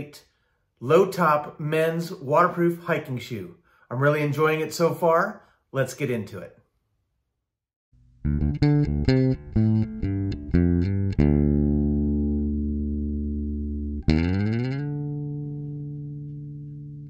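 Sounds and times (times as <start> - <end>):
guitar jingle: 8.2 - 17.0.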